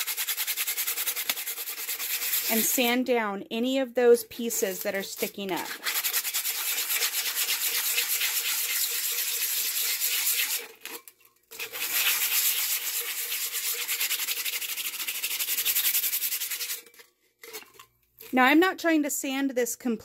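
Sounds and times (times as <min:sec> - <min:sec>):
sandpaper rasping on surface: 0:00.0 - 0:02.8, 0:05.2 - 0:10.7, 0:11.6 - 0:16.8.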